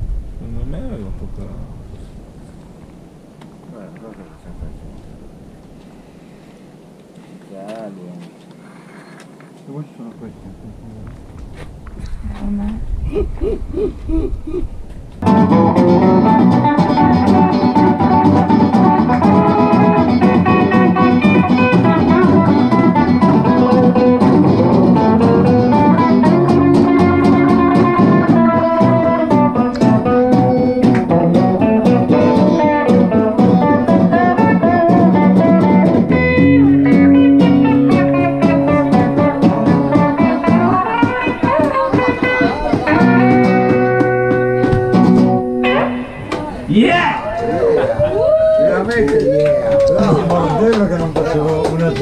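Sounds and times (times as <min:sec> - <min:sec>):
electric guitar and drums music: 0:15.2 - 0:46.7.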